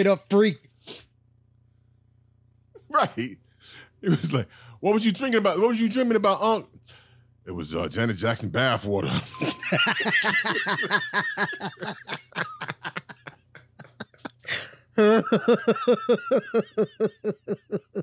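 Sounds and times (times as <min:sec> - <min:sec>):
men laughing hard: 0:09.1 - 0:18.0.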